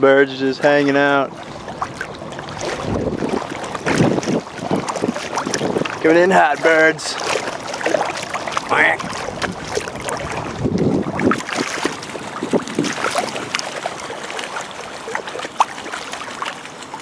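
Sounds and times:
water sloshing and splashing: 0:00.0 - 0:17.0
wind noise on microphone: 0:01.2 - 0:07.3, 0:08.0 - 0:13.8.

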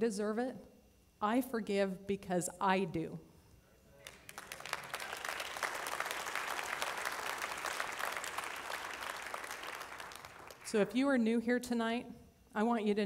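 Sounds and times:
audience applauding: 0:04.0 - 0:10.8.

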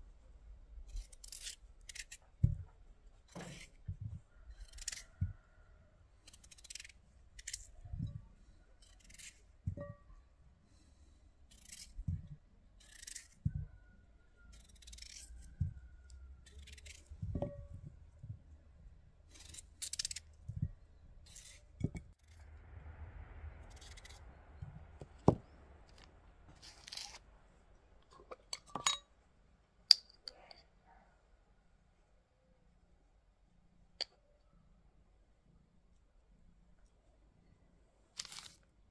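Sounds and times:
knife slicing potatoes: 0:03.3 - 0:03.8, 0:04.6 - 0:05.3, 0:11.5 - 0:13.7, 0:14.5 - 0:15.8, 0:16.4 - 0:17.6.

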